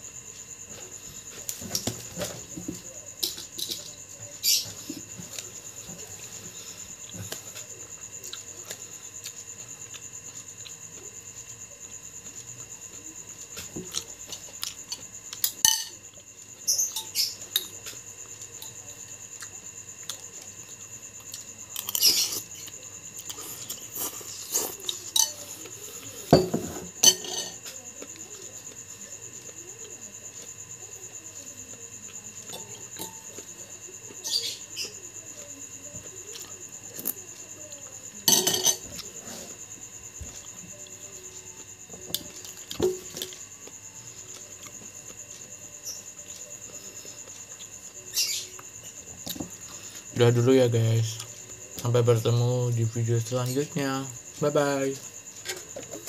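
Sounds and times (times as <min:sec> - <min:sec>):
metal spoon clinking against bowl: 0:15.6 - 0:16.0, 0:27.0 - 0:27.6, 0:38.3 - 0:38.9.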